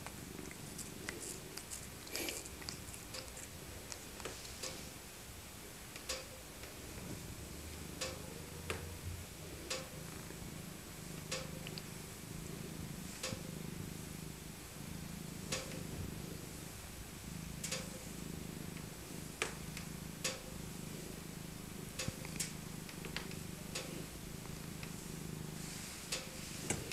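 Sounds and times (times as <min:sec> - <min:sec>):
cat purring: 0:00.0 - 0:05.0, 0:06.8 - 0:26.9
sharp clicks: 0:17.6 - 0:18.0.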